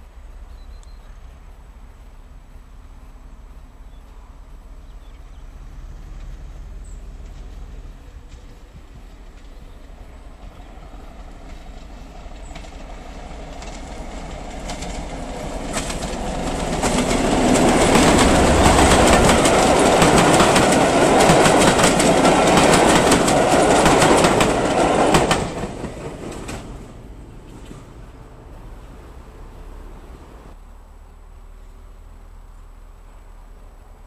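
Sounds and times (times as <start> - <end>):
diesel locomotive passing: 1.2 - 34.0
wheels clattering over rail joints: 6.1 - 28.3.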